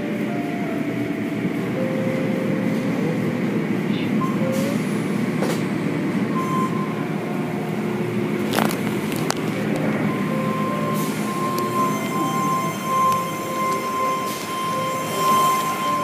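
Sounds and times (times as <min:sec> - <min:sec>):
car wash machinery rumbling: 0:00.0 - 0:16.0
thin steady whine: 0:06.0 - 0:16.0.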